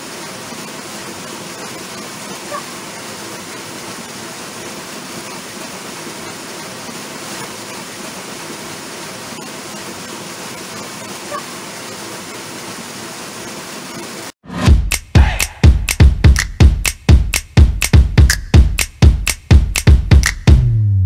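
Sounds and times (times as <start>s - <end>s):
waterfall rushing: 0.0s - 14.4s
music with heavy beat: 14.6s - 20.8s.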